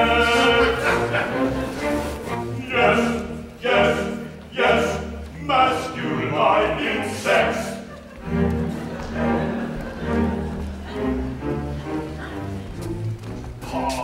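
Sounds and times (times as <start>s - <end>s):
men singing: 0.0s - 1.8s, 2.5s - 7.8s
orchestra playing: 0.0s - 14.0s.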